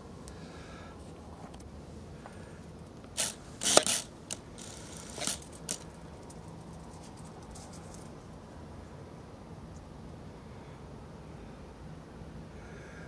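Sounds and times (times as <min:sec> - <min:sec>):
deer rustling and crunching stalks: 0:03.1 - 0:05.8.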